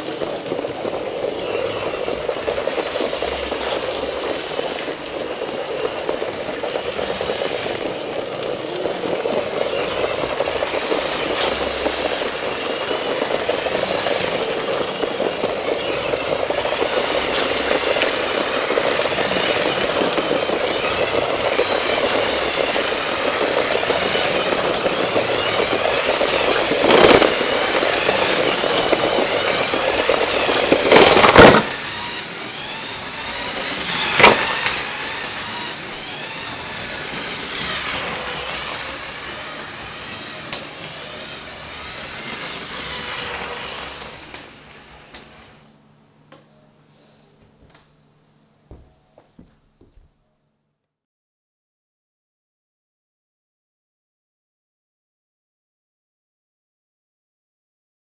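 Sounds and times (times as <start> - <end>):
carriages rattling: 0.0 - 45.5
toy train motor whirring: 0.0 - 45.6.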